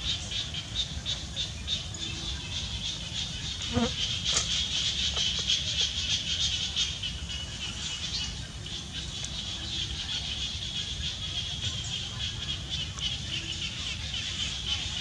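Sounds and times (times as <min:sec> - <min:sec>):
insects buzzing: 0:02.6 - 0:05.4.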